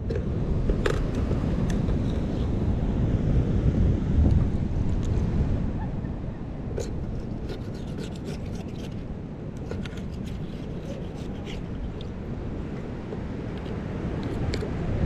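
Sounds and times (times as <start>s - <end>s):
knife scraping mussel shell: 6.7s - 14.7s.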